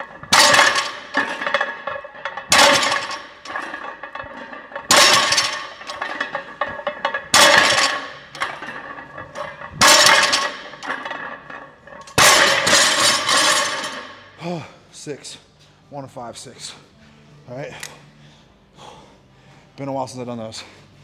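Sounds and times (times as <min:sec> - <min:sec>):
barbell clanking onto floor: 0:00.0 - 0:14.1.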